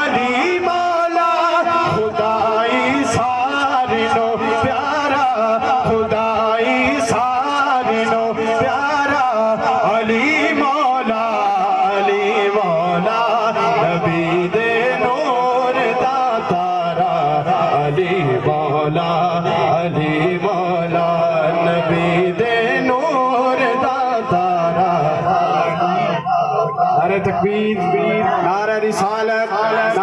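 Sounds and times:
man singing into a microphone: 0:00.0 - 0:30.0.

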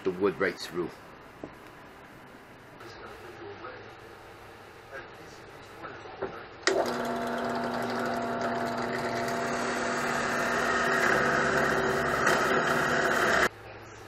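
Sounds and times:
drill press motor humming: 0:06.6 - 0:13.5
drill bit boring into wood: 0:06.7 - 0:13.5.

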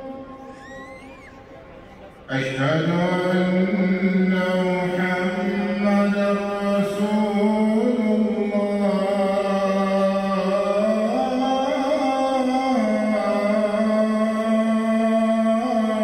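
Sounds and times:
man chanting: 0:02.3 - 0:16.0.

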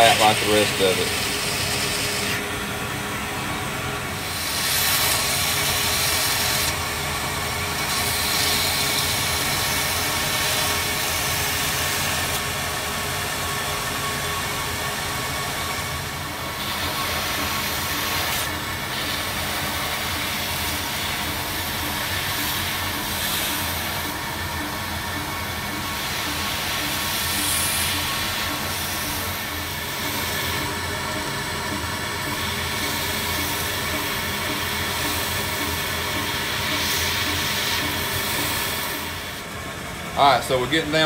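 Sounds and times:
grinding hiss on metal: 0:00.0 - 0:02.5, 0:04.2 - 0:39.6
belt grinder motor hum: 0:16.4 - 0:39.4.

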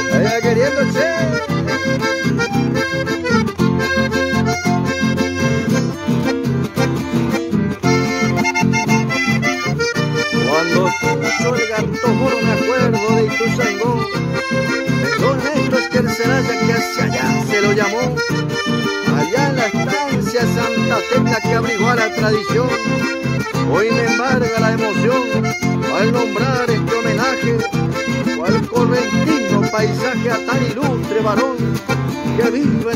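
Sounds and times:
button accordion melody: 0:00.0 - 0:32.9
rhythmic bass chords: 0:00.0 - 0:32.9.

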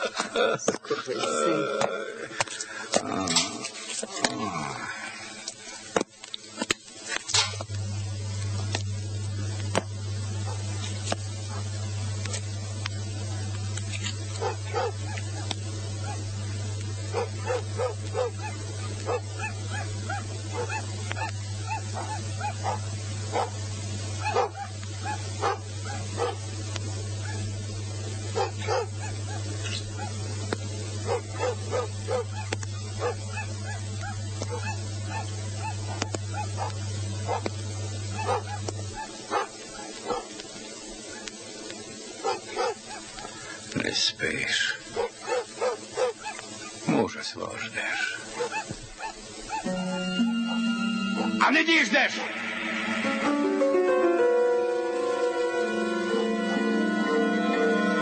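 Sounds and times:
low hum with hiss: 0:00.0 - 0:58.0
dog barking: 0:14.4 - 0:16.2, 0:17.1 - 0:23.6, 0:24.2 - 0:26.4, 0:27.2 - 0:27.5, 0:28.4 - 0:30.2, 0:31.0 - 0:37.5, 0:38.1 - 0:40.3, 0:42.2 - 0:43.4, 0:44.9 - 0:46.8, 0:48.1 - 0:50.6.

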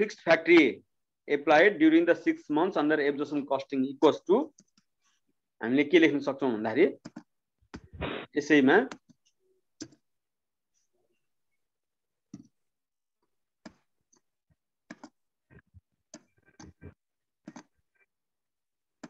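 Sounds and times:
computer mouse clicks: 0:07.0 - 0:07.9, 0:08.9 - 0:10.0, 0:12.3 - 0:12.6, 0:14.9 - 0:15.2, 0:16.1 - 0:17.8.

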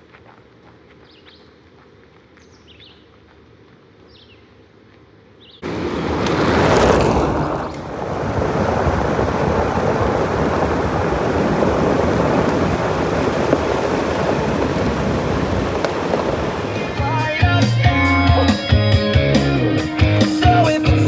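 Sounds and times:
gravel road noise: 0:00.0 - 0:21.0
rushing wind: 0:05.6 - 0:17.6.

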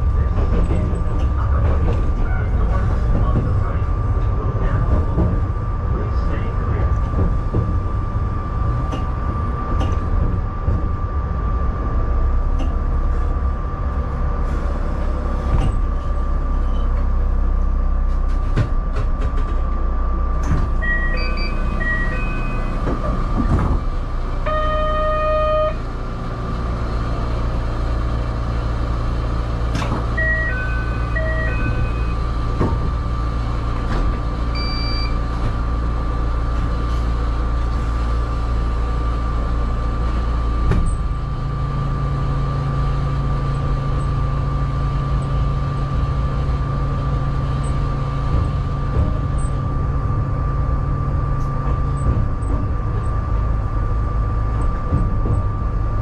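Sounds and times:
electric train running rumble: 0:00.0 - 0:56.0
buzzer-like tone: 0:20.8 - 0:22.8, 0:24.4 - 0:25.9, 0:30.2 - 0:32.2
electronic tones: 0:20.8 - 0:22.8, 0:24.5 - 0:25.8, 0:30.2 - 0:32.2.

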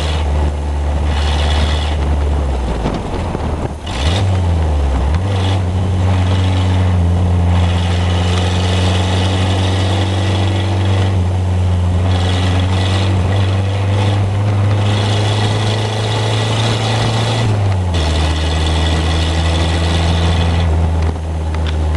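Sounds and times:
car engine exhaust note: 0:00.0 - 0:21.9.

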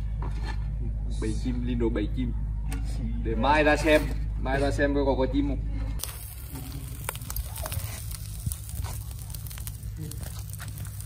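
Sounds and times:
low rumble: 0:05.7 - 0:11.0
charcoal fire crackling: 0:06.0 - 0:11.0.

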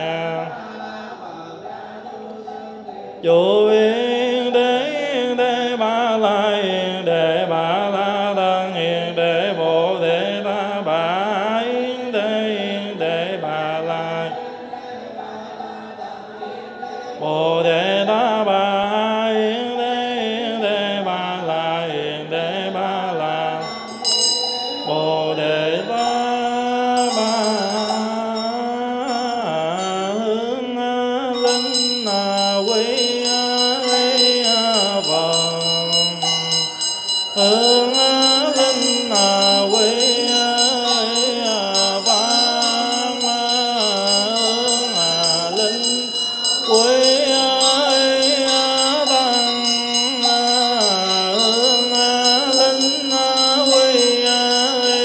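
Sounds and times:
person chanting: 0:00.0 - 0:55.0
handbell ringing: 0:23.6 - 0:30.3, 0:31.3 - 0:55.0.

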